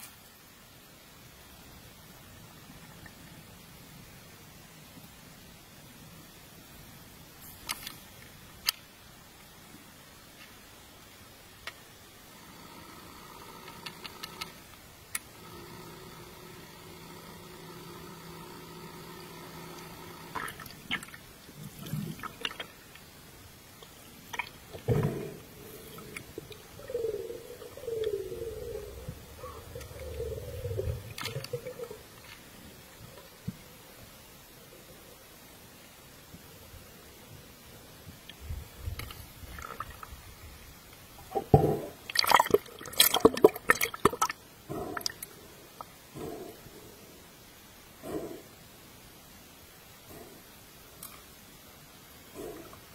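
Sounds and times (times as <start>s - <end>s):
faint low rumbles: 0.0s - 52.9s
underwater motor hum: 12.3s - 23.1s
water gurgles and bubbles: 19.8s - 23.0s, 41.3s - 45.3s.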